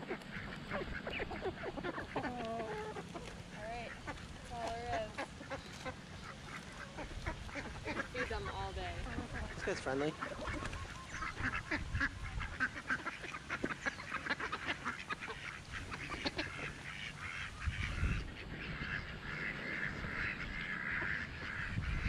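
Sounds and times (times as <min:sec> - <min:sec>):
ducks quacking: 0:00.0 - 0:22.0.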